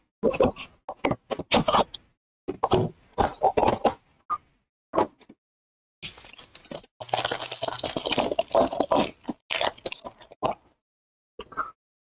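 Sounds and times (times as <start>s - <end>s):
foil wrapper crinkling and tearing: 6.2s - 10.4s.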